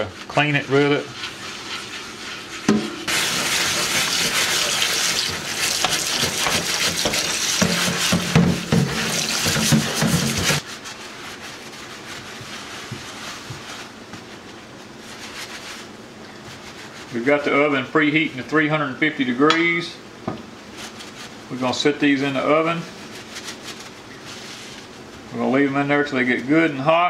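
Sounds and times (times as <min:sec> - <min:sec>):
towel rubbing metal: 0:00.0 - 0:15.9
tap running into sink: 0:05.2 - 0:10.6.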